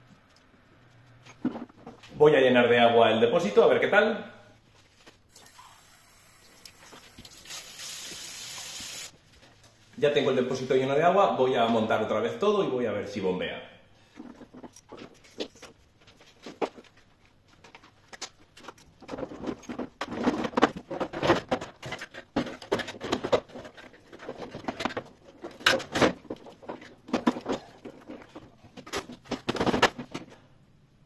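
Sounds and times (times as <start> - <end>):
plastic parts clicking and scraping: 14.1 - 17.0, 17.6 - 30.4.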